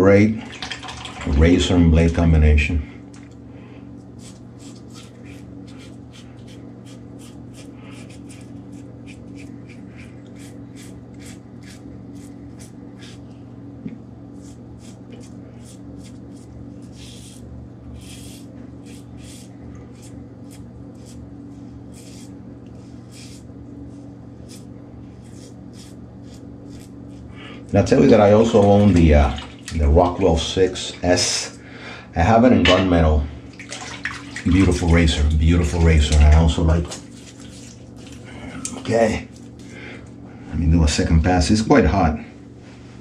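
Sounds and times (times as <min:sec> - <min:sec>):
steady low hum: 0:00.0 - 0:43.0
razor scraping stubble: 0:04.0 - 0:13.4, 0:14.3 - 0:27.3, 0:34.7 - 0:39.8.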